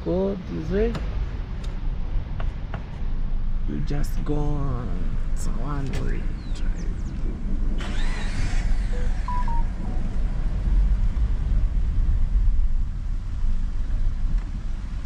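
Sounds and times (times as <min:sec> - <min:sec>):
car rolling rumble from cabin: 0:00.0 - 0:15.0
short faint beeps: 0:09.0 - 0:10.0.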